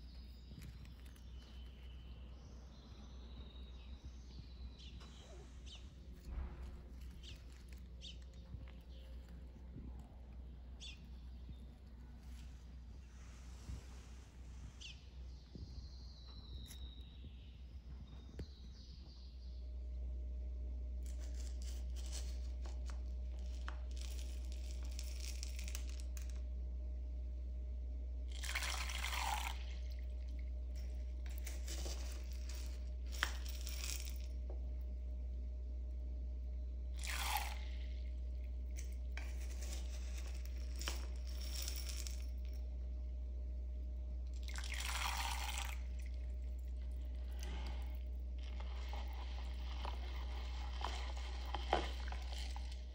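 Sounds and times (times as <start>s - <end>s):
spoon scooping lentils: 0.0s - 2.3s, 4.4s - 14.2s, 21.0s - 26.4s, 28.3s - 35.0s, 37.0s - 42.7s, 44.4s - 52.9s
steady low hum: 0.0s - 52.9s
lentils splashing into water: 28.3s - 30.2s, 37.0s - 37.9s, 44.4s - 46.2s.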